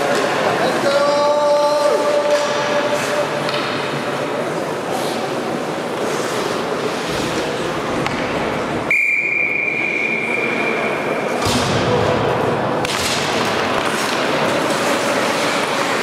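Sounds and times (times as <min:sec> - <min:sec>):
ice rink noise: 0:00.0 - 0:16.0
high whistle-like tone: 0:08.9 - 0:11.1.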